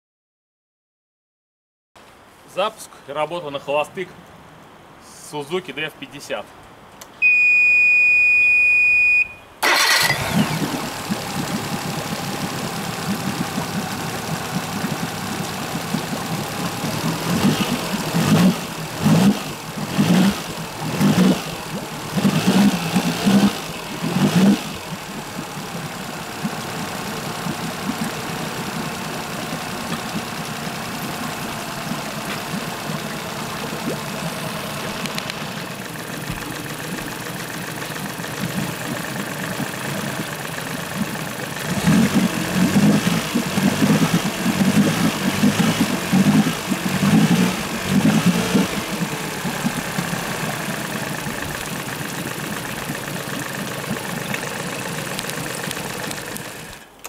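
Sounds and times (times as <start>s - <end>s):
steady beep: 7.2s - 9.5s
outboard motor idling: 9.6s - 57.0s.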